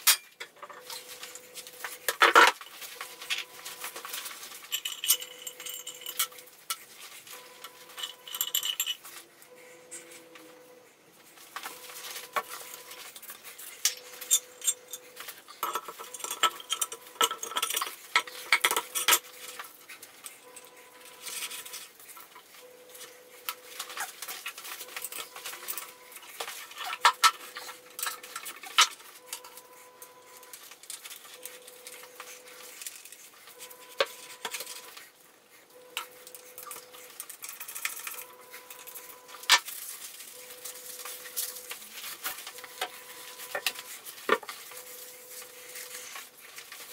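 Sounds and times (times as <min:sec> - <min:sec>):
heavy metal clinks and knocks: 0:02.1 - 0:06.8, 0:07.7 - 0:09.2, 0:13.9 - 0:19.6.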